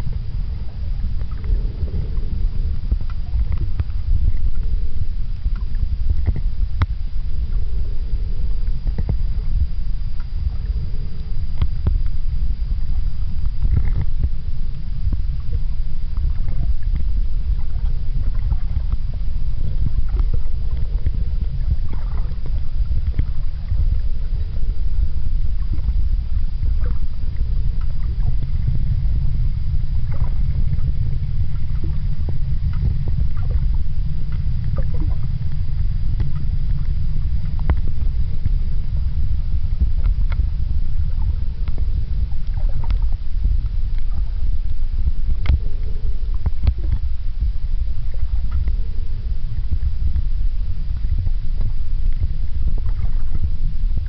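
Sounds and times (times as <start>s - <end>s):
underwater rumble: 0.0s - 54.0s
faint clicks and ticks: 0.1s - 7.6s, 8.6s - 12.4s, 13.0s - 54.0s.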